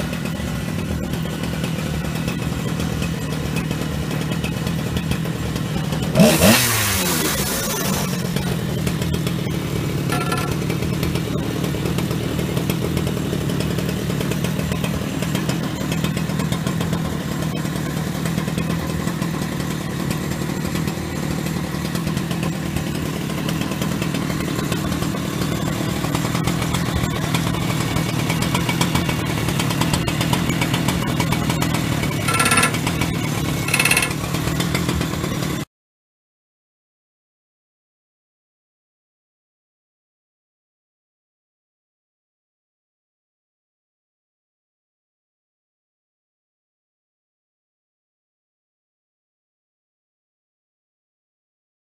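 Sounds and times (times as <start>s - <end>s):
chainsaw idling: 0.0s - 35.6s.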